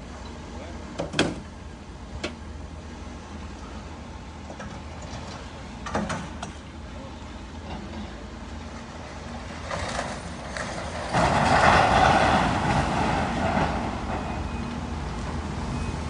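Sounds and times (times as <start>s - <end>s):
diesel engine humming: 0.0s - 16.0s
crash of falling debris: 9.9s - 13.6s.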